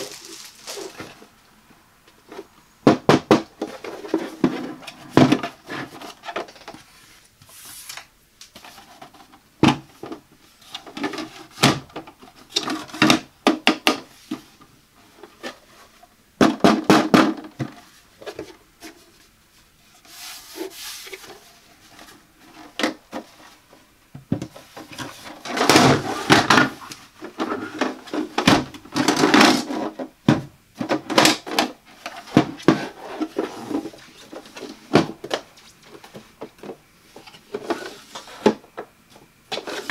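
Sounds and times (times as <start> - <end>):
scraping against plastic: 3.6 - 13.2, 30.8 - 38.9, 39.5 - 39.9.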